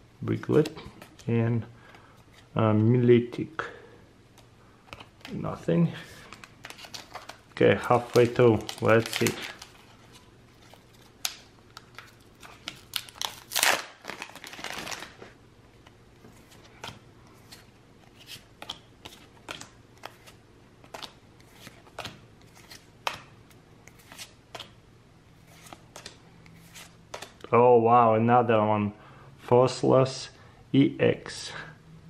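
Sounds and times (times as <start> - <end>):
foil wrapper crinkling: 6.6 - 9.9, 11.2 - 15.2.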